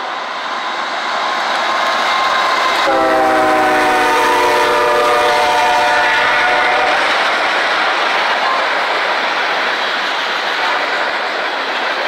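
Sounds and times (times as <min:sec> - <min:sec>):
freight cars rolling on rails: 0:00.0 - 0:12.0
locomotive air horn chord: 0:02.8 - 0:07.0.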